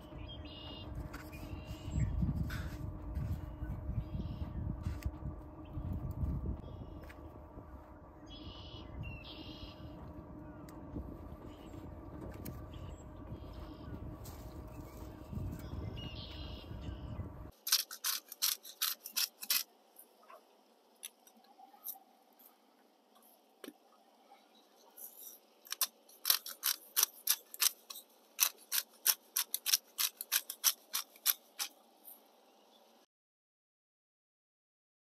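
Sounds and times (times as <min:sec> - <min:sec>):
spice grinder crunching clicks: 0:17.6 - 0:19.7, 0:25.7 - 0:31.7.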